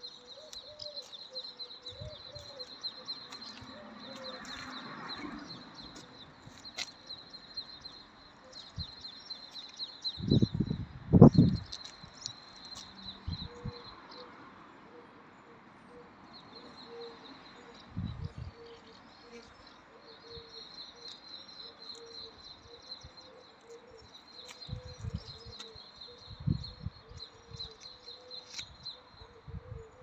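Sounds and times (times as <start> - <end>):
birds chirping: 0.0 - 14.3.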